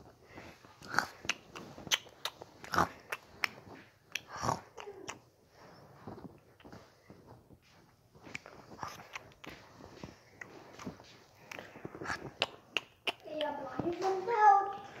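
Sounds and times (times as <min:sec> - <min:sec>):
chewing and munching: 0:00.0 - 0:07.2, 0:08.2 - 0:13.7
mouth clicks and smacks: 0:00.4 - 0:05.3, 0:06.2 - 0:06.9, 0:08.2 - 0:14.1.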